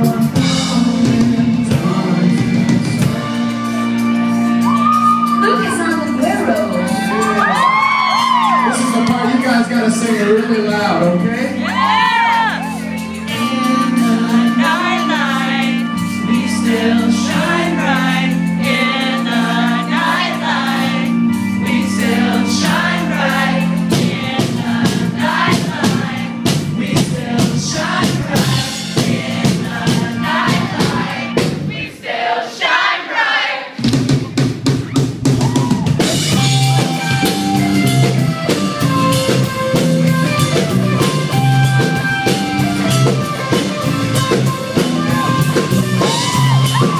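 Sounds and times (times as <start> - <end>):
person singing: 0.0 - 3.7, 13.2 - 18.0
bass guitar: 0.0 - 31.8, 33.8 - 46.9
drum kit: 0.0 - 32.0, 33.7 - 46.9.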